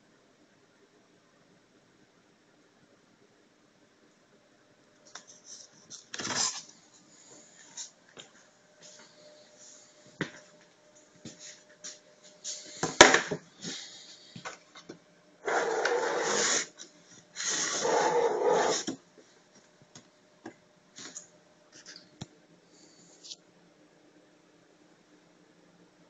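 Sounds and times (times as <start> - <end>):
print table sliding on rails: 15.4 - 16.8, 17.4 - 19.0.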